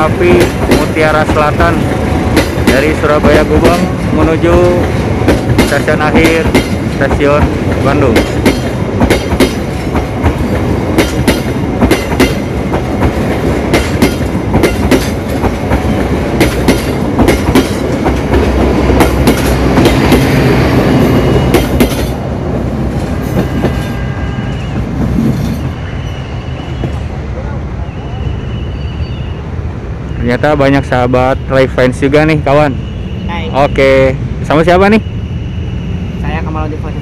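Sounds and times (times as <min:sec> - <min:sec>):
train wheels clacking over rail joints: 0:00.0 - 0:22.2
train rumble: 0:00.0 - 0:37.0.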